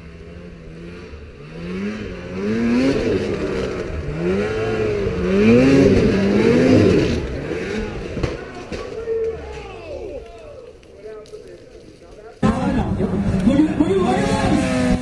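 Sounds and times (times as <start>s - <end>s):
snowmobile engine revving: 0.0s - 10.3s, 12.4s - 15.0s.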